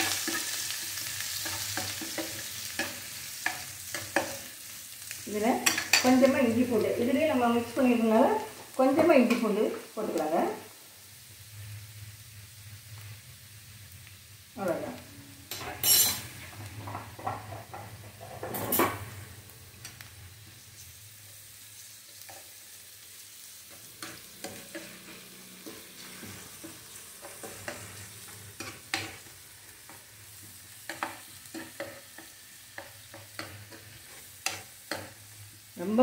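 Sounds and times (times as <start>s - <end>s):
faint oil sizzle: 0.0s - 36.0s
metal spoon scraping frying pan: 5.6s - 6.4s, 15.5s - 19.1s, 23.8s - 29.3s.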